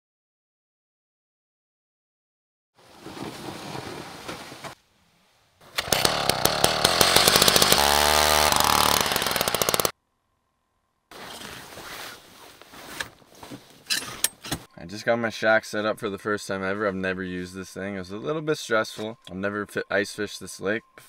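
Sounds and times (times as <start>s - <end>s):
shuffling noise: 2.8s - 4.8s, 11.1s - 14.7s
rustling: 2.8s - 4.9s, 11.1s - 14.7s
ice auger engine rattling: 5.7s - 9.9s.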